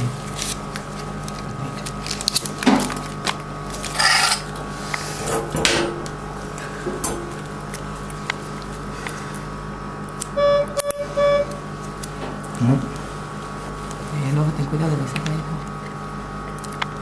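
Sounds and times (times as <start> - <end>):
electrical hum: 0.0 - 17.0
electronic beep: 10.4 - 11.6.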